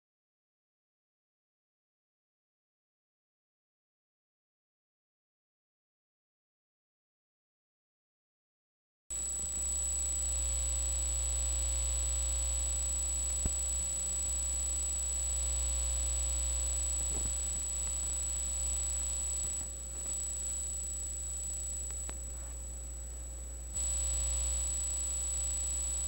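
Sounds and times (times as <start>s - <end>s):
electrical hum: 9.1s - 26.0s
faint buzz: 9.1s - 26.0s
thin high whine: 9.1s - 26.0s
faint click: 13.3s - 13.7s, 21.8s - 22.6s.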